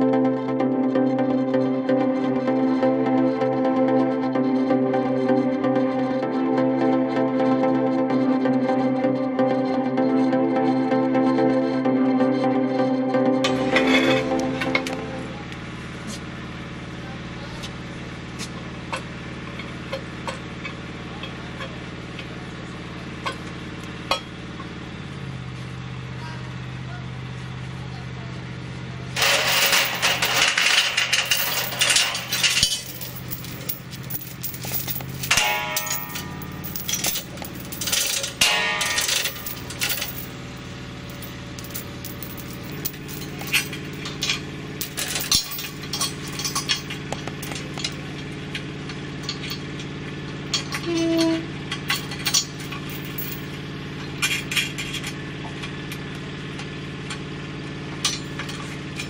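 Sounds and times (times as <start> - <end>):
chain clinking and rattling: 13.5 - 15.0, 29.2 - 48.1, 50.5 - 55.0
forklift engine idling: 35.1 - 42.0.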